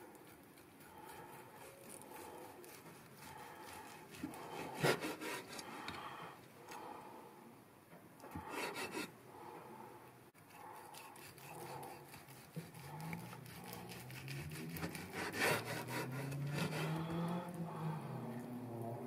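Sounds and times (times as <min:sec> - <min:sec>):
knife sawing through meat: 0:00.0 - 0:05.7, 0:08.4 - 0:09.1, 0:10.4 - 0:17.6.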